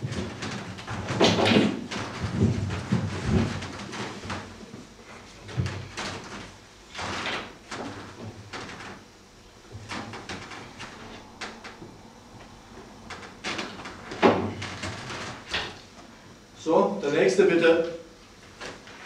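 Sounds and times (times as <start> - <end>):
furniture knocks and scrapes: 0.0 - 9.0
chair moved: 0.0 - 16.2.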